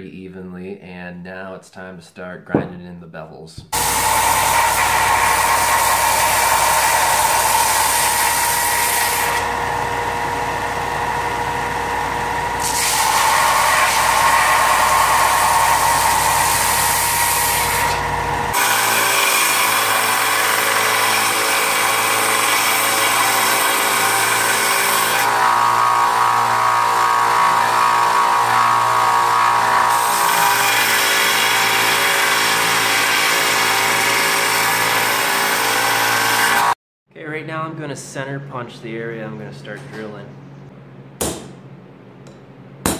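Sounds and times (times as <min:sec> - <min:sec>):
grinder motor hum: 0:03.7 - 0:36.8.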